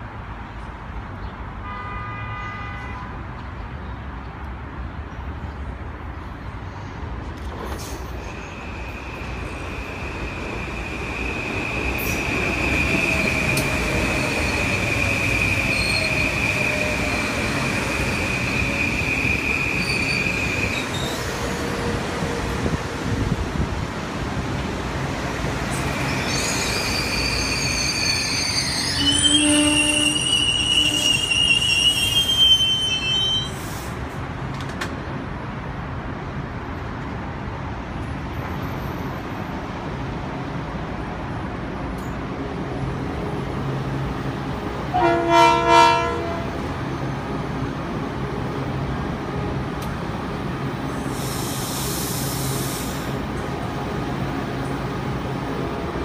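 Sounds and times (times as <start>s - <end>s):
low train whine: 6.2s - 56.0s
train wheel squeal: 7.8s - 21.7s, 25.8s - 33.9s.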